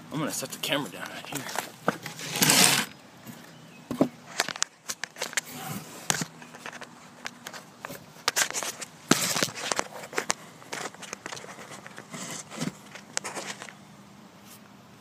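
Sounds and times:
rustling: 1.0s - 3.4s, 4.2s - 13.8s.

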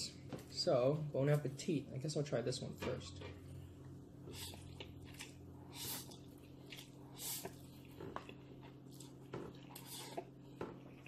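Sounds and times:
person slurping noodles: 4.2s - 7.7s, 9.6s - 10.4s.

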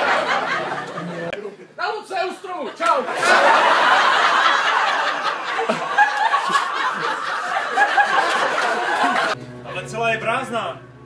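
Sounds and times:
audience laughing: 0.0s - 1.8s, 2.6s - 9.4s.

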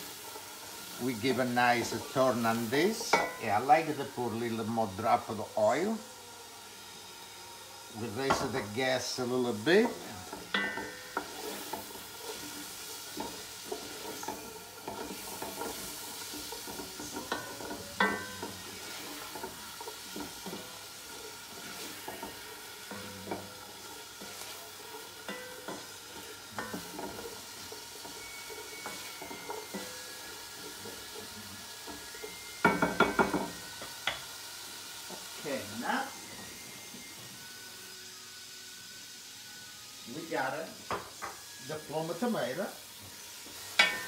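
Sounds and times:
vegetables sizzling in oil: 0.0s - 44.0s
spoon stirring and knocking pot: 1.8s - 3.4s, 8.2s - 9.2s, 9.8s - 34.3s, 43.8s - 44.0s.

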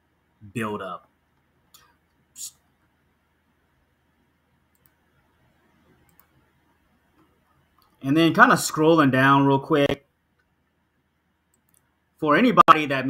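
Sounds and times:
soft hiss-like noise: 0.0s - 12.9s
computer mouse clicks: 4.7s - 5.0s, 5.6s - 6.5s, 11.5s - 11.9s.

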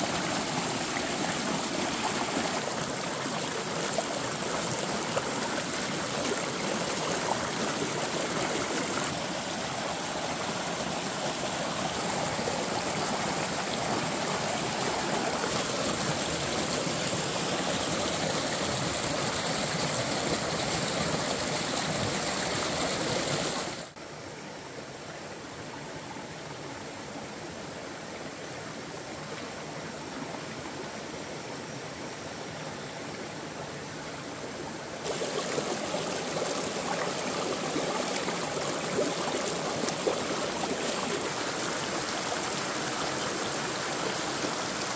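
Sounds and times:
stream rushing over stones: 0.0s - 24.0s, 33.1s - 44.9s.

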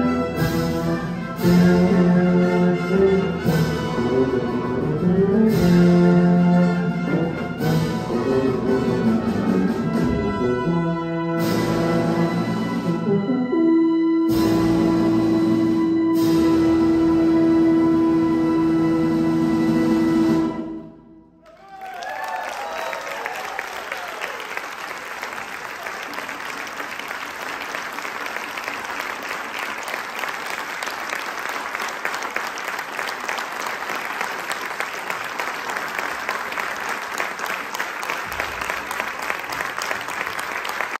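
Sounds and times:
audience applauding: 21.4s - 41.0s.

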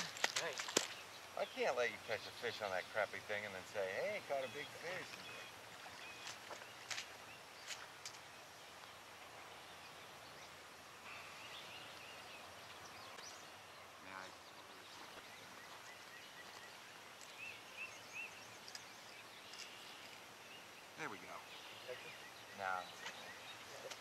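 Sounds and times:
bird chirps: 4.0s - 7.8s, 9.6s - 24.0s.

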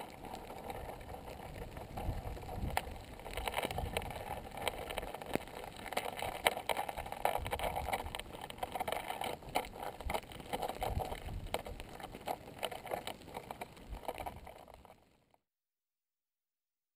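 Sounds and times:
lava crust crackling and ticking: 0.0s - 15.4s.

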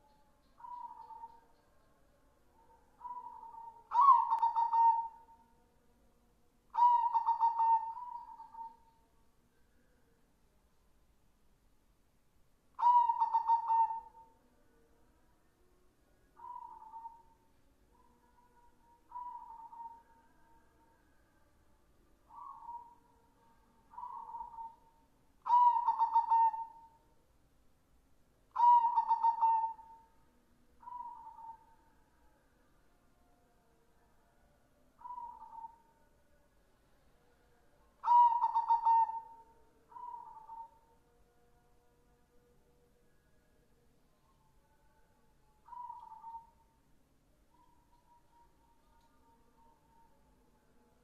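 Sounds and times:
dove cooing: 0.6s - 1.4s, 3.0s - 5.4s, 6.8s - 8.8s, 12.8s - 14.3s, 19.1s - 20.0s, 22.3s - 23.0s, 23.9s - 27.0s, 28.6s - 30.1s, 30.8s - 31.6s, 35.0s - 35.8s, 38.0s - 40.8s, 45.7s - 46.6s.

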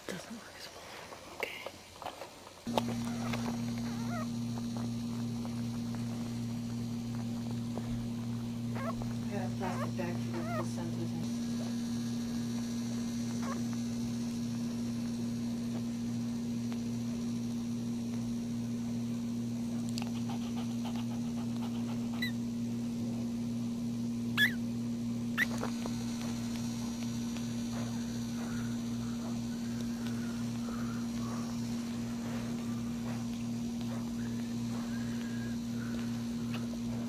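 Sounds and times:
low electrical hum: 0.0s - 37.0s
puppies grunting softly: 2.7s - 11.2s, 19.9s - 22.6s, 27.0s - 37.0s
puppies squeaking: 2.9s - 4.3s, 8.7s - 10.9s, 22.1s - 22.4s, 24.4s - 24.6s.

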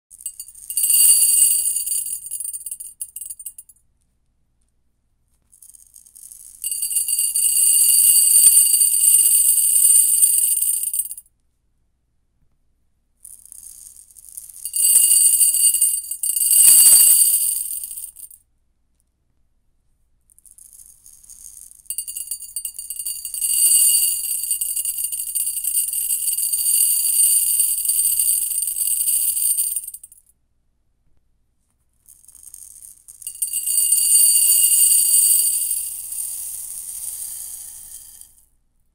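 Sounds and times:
rice pouring into ceramic bowl: 0.4s - 2.8s, 6.6s - 11.0s, 14.6s - 17.8s, 21.9s - 29.8s, 33.3s - 38.2s.

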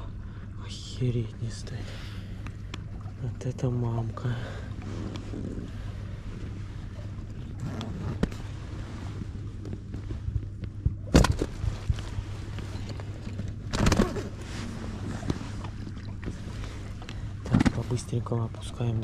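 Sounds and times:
steady low hum: 0.0s - 19.0s
knocks and clatter in boat: 7.4s - 19.0s.

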